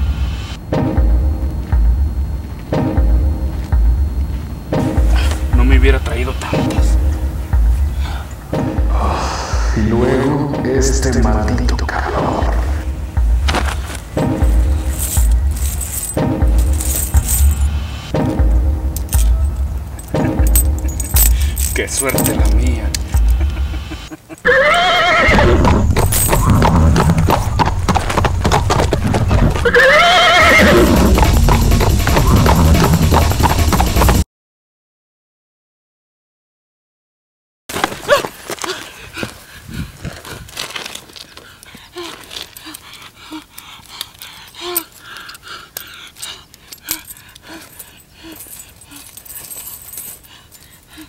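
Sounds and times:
bag rustling: 13.5s - 17.8s, 37.7s - 43.2s, 43.8s - 51.0s
light clicks and clinks: 19.0s - 23.4s, 40.5s - 51.0s
horse neighing: 24.4s - 27.9s, 29.5s - 31.0s
clatter of hoofbeats: 25.3s - 34.2s.

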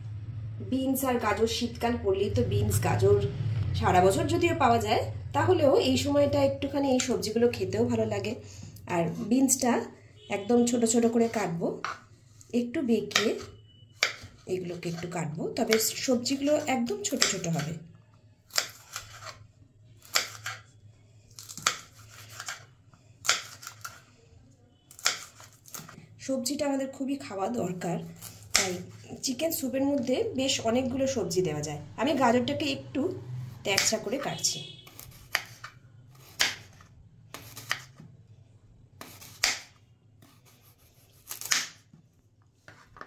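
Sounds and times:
low steady hum: 0.0s - 10.3s
knife slicing carrot: 10.9s - 17.8s, 18.5s - 19.4s, 20.0s - 20.6s, 21.3s - 24.0s, 24.9s - 26.0s, 28.0s - 29.3s, 33.7s - 38.0s, 39.0s - 41.8s.

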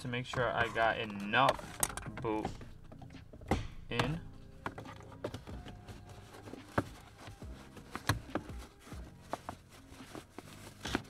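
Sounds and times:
shifter boot clicks and knocks: 0.0s - 9.6s.

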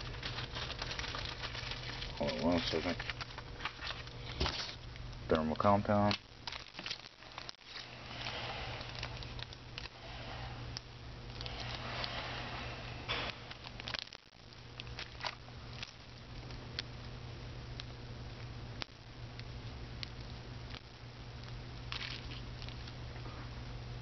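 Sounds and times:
plastic bags crinkling: 0.0s - 4.8s, 5.4s - 12.1s, 13.1s - 16.2s, 21.9s - 23.0s
steady low hum: 0.0s - 24.0s.

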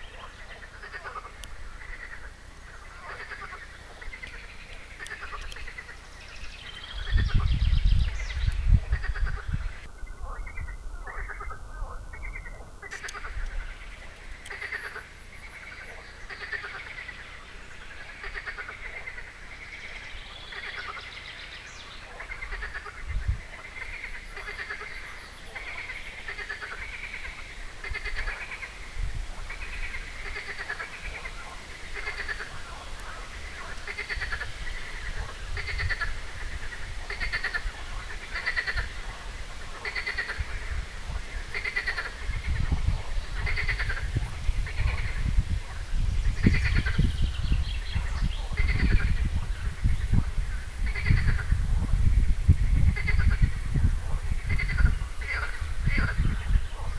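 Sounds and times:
frogs croaking: 0.0s - 56.9s.

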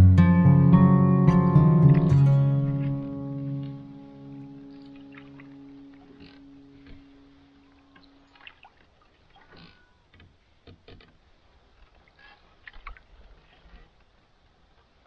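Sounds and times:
paddle splashes and drips: 4.8s - 15.0s.

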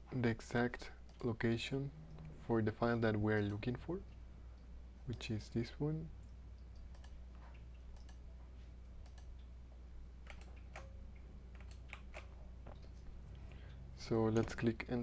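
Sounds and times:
steady low hum: 0.0s - 15.0s
computer mouse and keyboard clicks: 6.8s - 8.2s, 9.0s - 9.4s, 10.2s - 10.9s, 11.5s - 13.0s.

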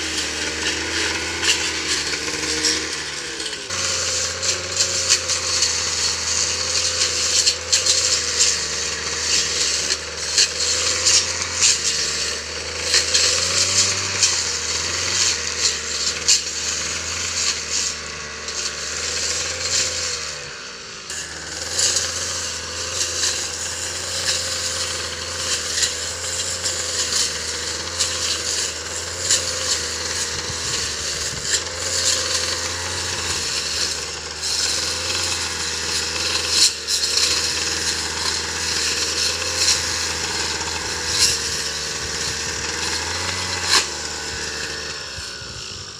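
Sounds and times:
ticks of cut grass: 0.0s - 20.5s, 21.1s - 45.9s
brush cutter engine running: 0.0s - 45.9s.

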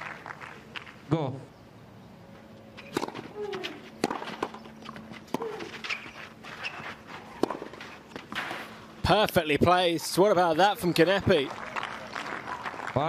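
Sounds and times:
racket striking tennis ball: 2.8s - 8.8s.

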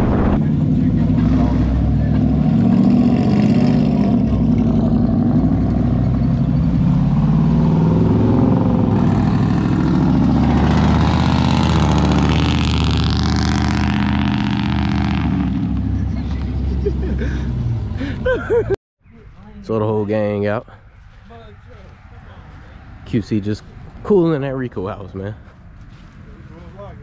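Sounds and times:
vehicles driving past: 0.0s - 27.0s.

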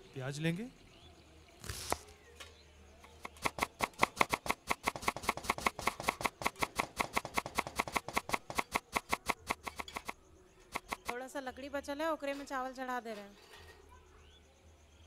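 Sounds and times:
knife chopping onion on wood: 3.2s - 10.2s, 10.8s - 11.2s.

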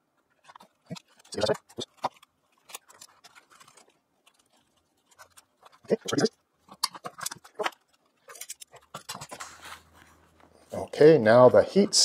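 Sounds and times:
wire and metal crimps clicking: 0.2s - 9.6s.

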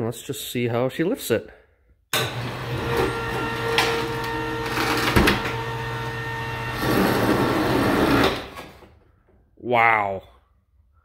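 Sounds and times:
electric hoist motor winding cable: 2.2s - 8.8s.

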